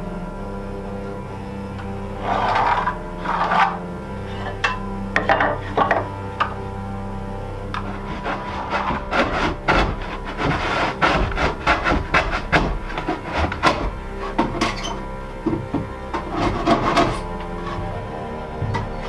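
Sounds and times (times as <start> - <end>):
background music: 0.0 - 19.0
wooden boards knocking on workbench: 4.6 - 6.6, 7.8 - 14.8.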